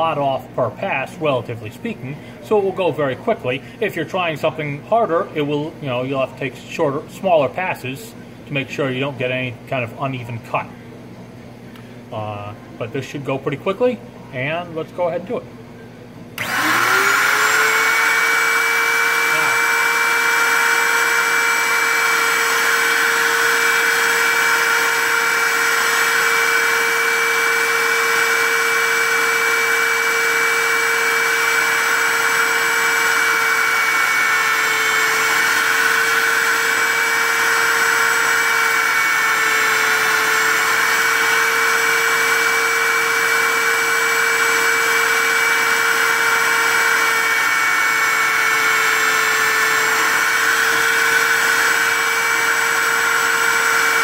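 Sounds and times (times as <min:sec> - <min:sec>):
cutting machine whining: 0:16.4 - 0:54.0.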